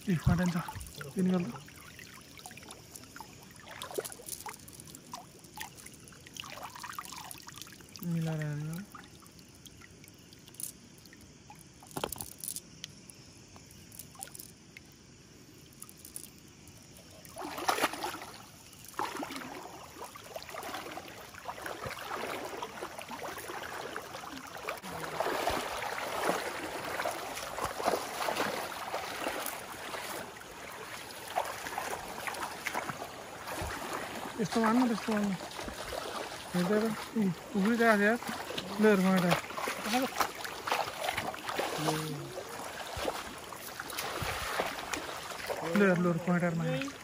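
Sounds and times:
wading splashes in shallow water: 0.0 - 47.0
clicks and drips from wet net: 0.6 - 14.9, 15.7 - 16.4, 17.0 - 20.8, 37.6 - 46.0.

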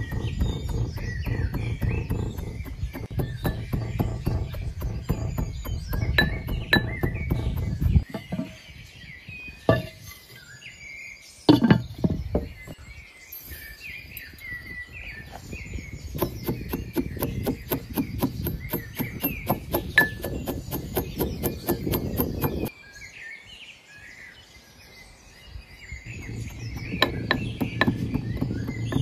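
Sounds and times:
metal pestle pounding in mortar: 0.0 - 8.5, 16.2 - 22.7, 26.1 - 29.0
small birds chirping: 0.0 - 29.0.

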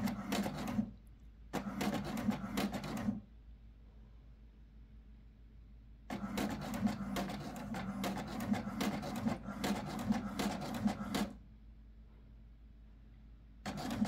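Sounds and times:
printer motor hum: 0.0 - 0.9, 1.6 - 3.2, 6.1 - 11.4, 13.6 - 14.0.

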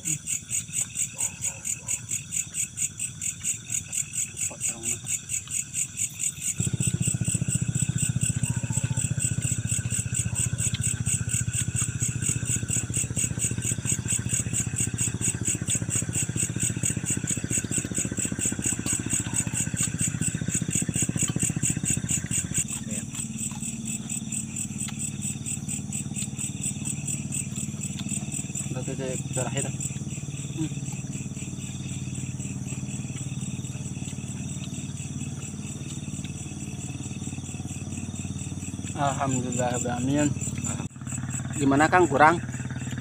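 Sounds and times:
crickets chirping: 0.0 - 43.0
motor engine running: 0.0 - 43.0.

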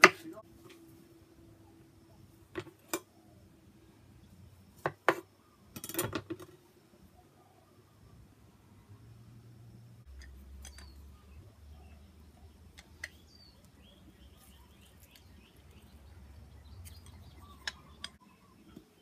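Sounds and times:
small birds chirping: 10.0 - 19.0.

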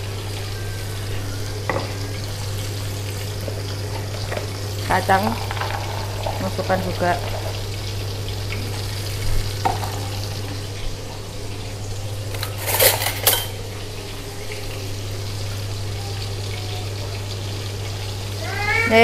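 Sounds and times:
fish frying in hot oil: 0.0 - 19.0
metal pan clatter: 12.3 - 13.6.

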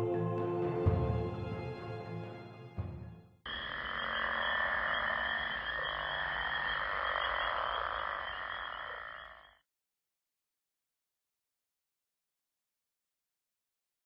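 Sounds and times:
frogs croaking: 3.5 - 9.6.

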